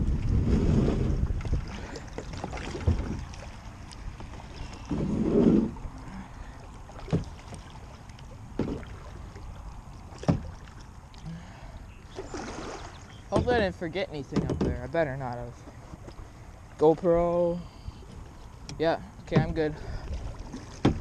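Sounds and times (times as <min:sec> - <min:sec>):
plastic kayak knocking and scraping: 0:00.0 - 0:05.9, 0:08.5 - 0:09.0, 0:10.0 - 0:10.6, 0:12.2 - 0:16.3, 0:18.1 - 0:21.0
paddle knocking on kayak: 0:08.6 - 0:09.0, 0:13.3 - 0:13.7, 0:19.3 - 0:19.6, 0:20.5 - 0:21.0.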